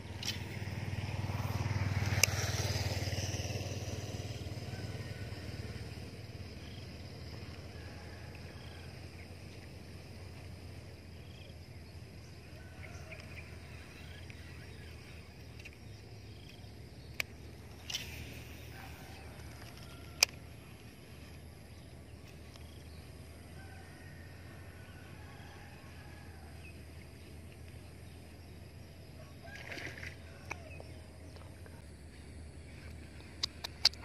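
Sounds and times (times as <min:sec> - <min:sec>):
low steady rumble: 0:00.0 - 0:34.0
sharp clicks: 0:33.4 - 0:34.0.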